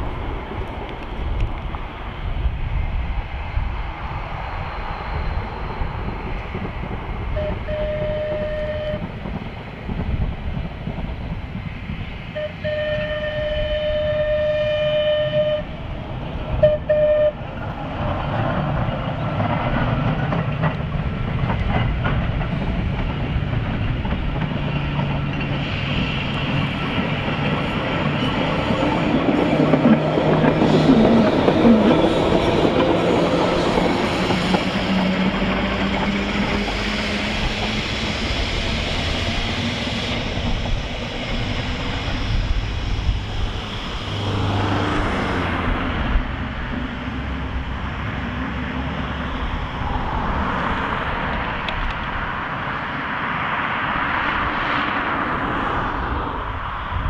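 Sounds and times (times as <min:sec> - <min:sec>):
tram wheels clattering on rails: 0:00.0 - 0:57.0
tram horn blasts: 0:07.2 - 0:09.3, 0:12.3 - 0:15.9, 0:16.5 - 0:17.6.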